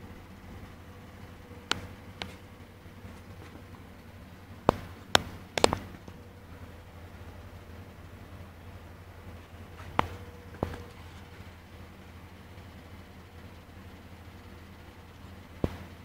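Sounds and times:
steady low hum: 0:00.0 - 0:16.0
sharp clicks: 0:01.7 - 0:02.4, 0:04.7 - 0:06.2.

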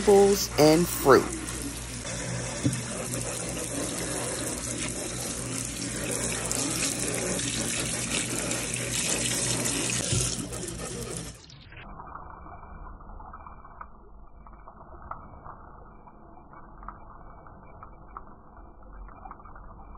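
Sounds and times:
tap water splashing in sink: 0:02.4 - 0:11.2.

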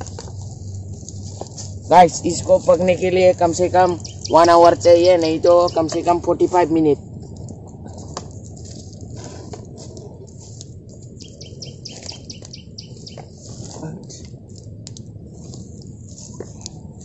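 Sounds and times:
low background noise: 0:00.0 - 0:17.0
small birds chirping: 0:00.4 - 0:06.9, 0:08.8 - 0:14.7.

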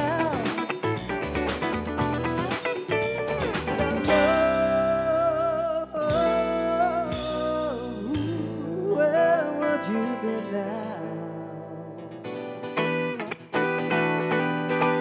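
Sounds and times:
lead guitar held notes: 0:00.0 - 0:08.2
rock band playing live: 0:00.0 - 0:09.0, 0:12.2 - 0:15.0.

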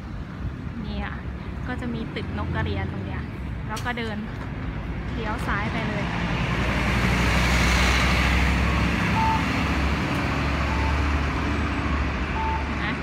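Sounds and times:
bus engine rumble: 0:00.0 - 0:13.0
road noise: 0:00.0 - 0:13.0
short high beeps: 0:09.2 - 0:09.5, 0:12.4 - 0:12.7.

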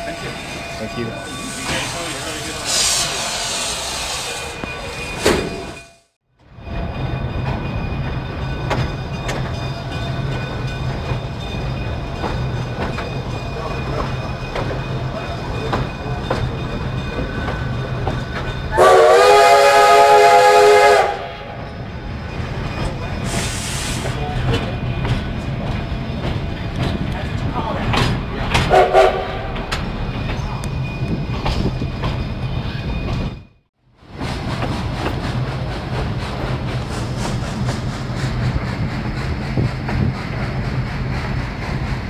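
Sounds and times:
train coach rumbling on track: 0:00.0 - 0:42.0
steam hiss: 0:01.2 - 0:04.6, 0:23.2 - 0:24.2, 0:34.2 - 0:42.0
steam whistle blast: 0:18.8 - 0:21.5.

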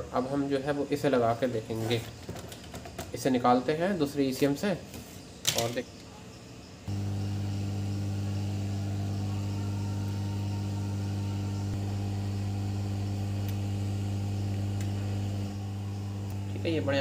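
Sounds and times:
hot air blower humming: 0:06.9 - 0:17.0.

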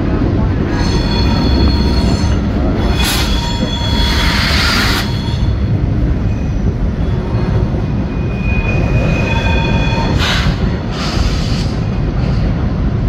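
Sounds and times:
train low rumble: 0:00.0 - 0:13.0
high wheel squeal: 0:00.7 - 0:05.6, 0:06.2 - 0:11.4.

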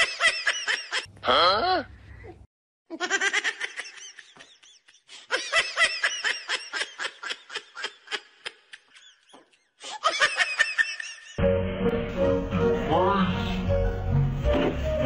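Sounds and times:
person laughing hard: 0:02.9 - 0:11.4
music: 0:11.4 - 0:15.0.

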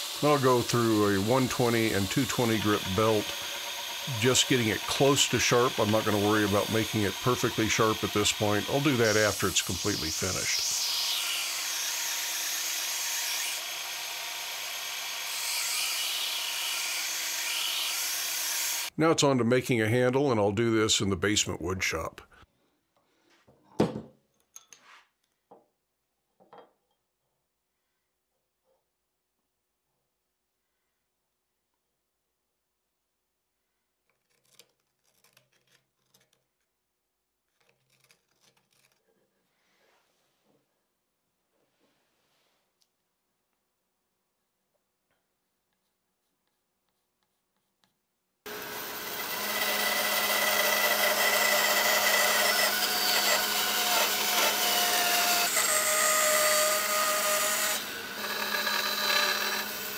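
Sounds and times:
belt grinder grinding steel: 0:00.0 - 0:18.9, 0:48.5 - 0:59.9
faint snipping and scraping: 0:34.0 - 0:36.7, 0:37.4 - 0:39.5.

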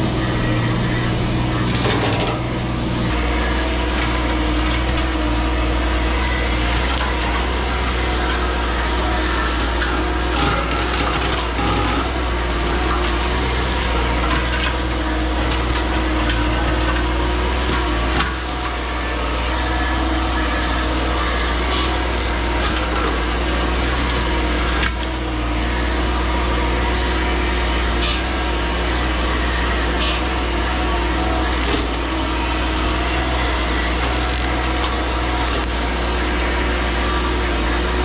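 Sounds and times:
mini excavator running: 0:00.0 - 0:38.0
wood splintering cracks: 0:31.5 - 0:35.8.

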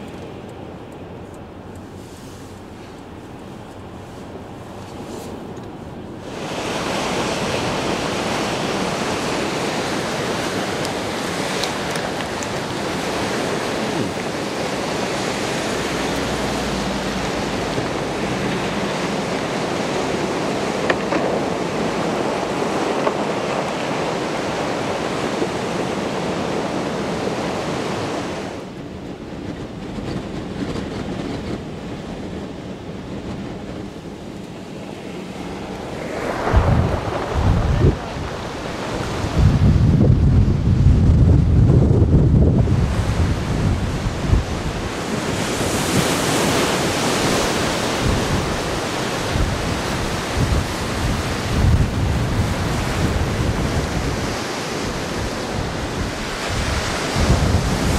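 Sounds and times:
strong wind: 0:00.0 - 0:57.9
waves breaking over shoreline: 0:00.0 - 0:57.9
wind buffeting microphone: 0:00.0 - 0:57.9.

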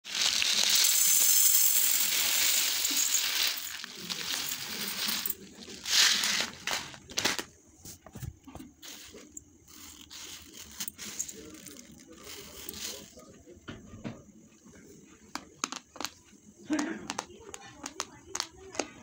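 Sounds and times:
rice grains pattering on metal plate: 0:00.0 - 0:07.4.

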